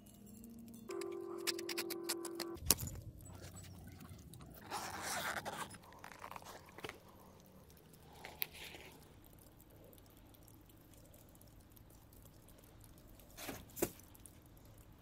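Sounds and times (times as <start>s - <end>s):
light clicks and rustles: 2.6s - 15.0s
zipper being pulled open: 4.6s - 6.6s.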